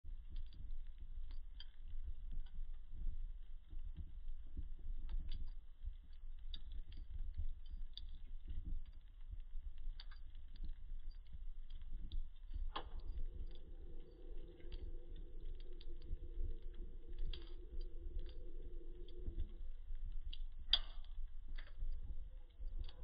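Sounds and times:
wood fire crackling: 0.1s - 23.0s
fire pops: 4.0s - 23.0s
low rumble: 9.6s - 23.0s
faint steady tone: 12.6s - 22.8s.

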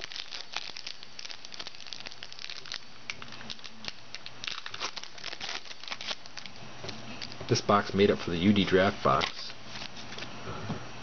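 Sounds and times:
foil wrapper crinkling: 0.0s - 7.4s.

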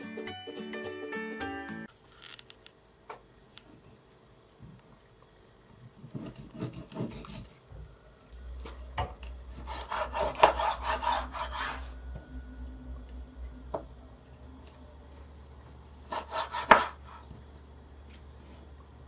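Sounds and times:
knife scraping fish bone: 9.6s - 11.8s, 16.1s - 17.2s.

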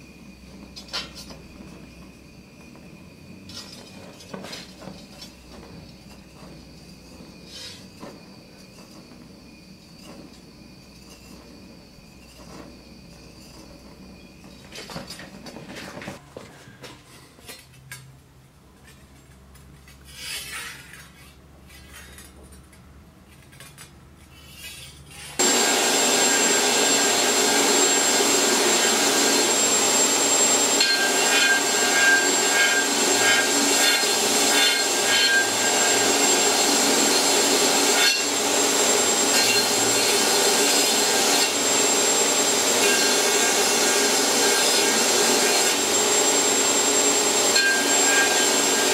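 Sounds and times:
belt grinder grinding steel: 24.5s - 48.9s.

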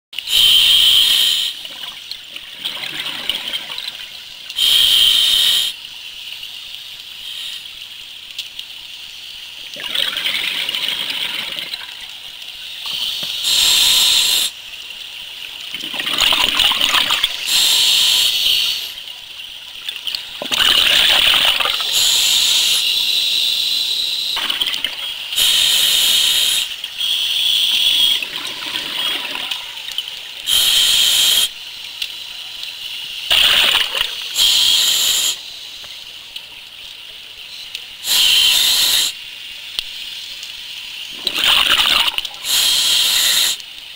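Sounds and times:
regulator hiss: 0.2s - 1.8s, 4.5s - 8.1s, 12.5s - 19.3s, 20.1s - 43.8s
scuba regulator exhaled bubbles: 24.4s - 26.6s, 33.3s - 35.4s, 41.1s - 43.5s.

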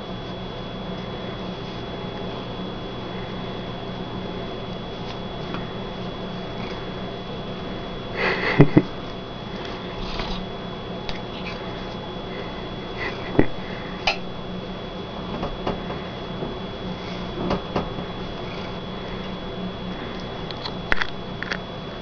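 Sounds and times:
steady low hum: 0.0s - 22.0s
cat rubbing and rustling: 4.6s - 7.8s, 8.8s - 12.1s, 15.2s - 20.9s.

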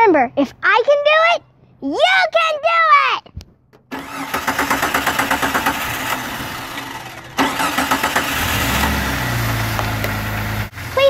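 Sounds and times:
engine cranking on starter: 3.9s - 10.5s.

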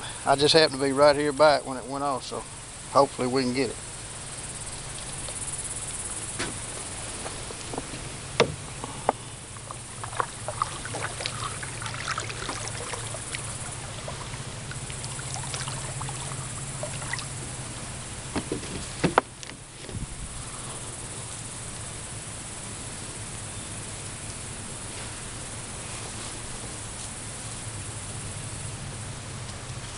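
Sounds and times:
insects: 0.0s - 29.9s
light water sounds: 4.4s - 8.0s, 8.8s - 18.9s
paddle knocking against hull: 7.5s - 17.5s, 18.3s - 20.0s.

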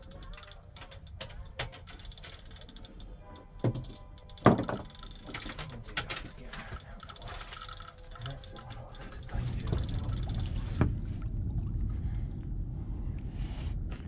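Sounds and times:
fishing reel ticking: 0.0s - 10.8s
low rumble: 9.1s - 14.0s.

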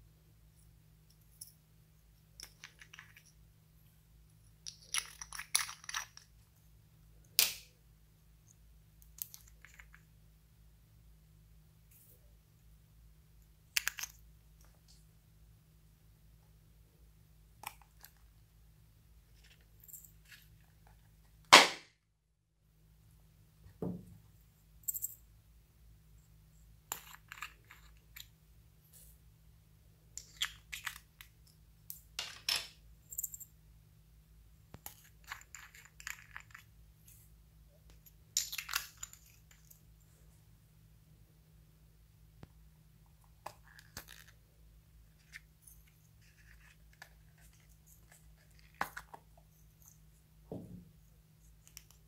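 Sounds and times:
loud sharp snap: 21.5s - 21.9s.

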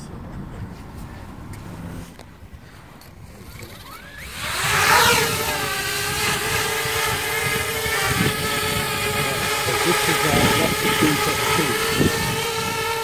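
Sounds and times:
drone propellers whining and buzzing: 1.4s - 2.3s, 3.3s - 13.0s
wind rumble on microphone: 4.4s - 13.0s.

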